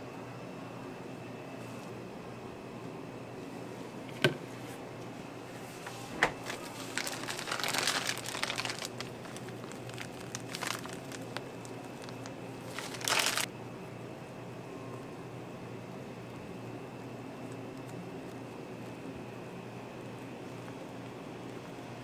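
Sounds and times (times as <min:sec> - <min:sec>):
plastic piping bag crinkling: 0:06.4 - 0:13.5.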